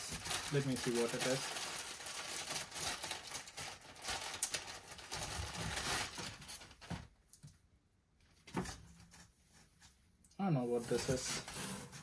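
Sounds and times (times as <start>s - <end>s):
plastic bag crinkling: 0.0s - 7.0s.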